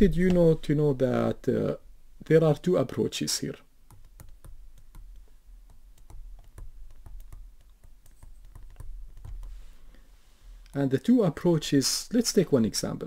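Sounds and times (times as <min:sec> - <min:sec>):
low steady hum: 0:00.0 - 0:13.0
pen tapping on touch screen: 0:03.9 - 0:09.7.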